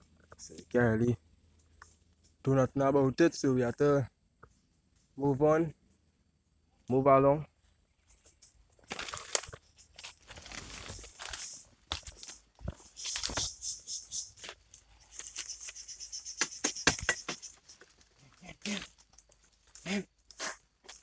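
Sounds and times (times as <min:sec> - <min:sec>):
twigs cracking: 0:08.3 - 0:13.6, 0:16.4 - 0:21.0
footsteps crunching dry leaves: 0:08.9 - 0:13.6.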